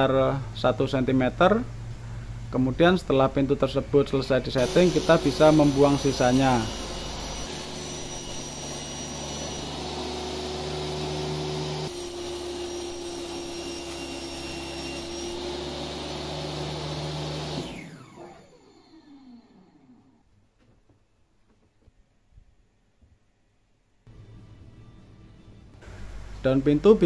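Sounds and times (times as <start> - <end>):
saw motor winding down whine: 4.6 - 20.2
table saw cutting wood panel: 4.6 - 20.2.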